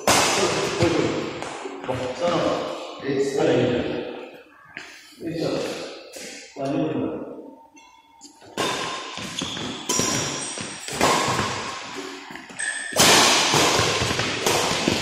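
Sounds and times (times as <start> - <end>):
badminton racket hitting shuttlecock: 8.5 - 12.0, 12.6 - 15.0.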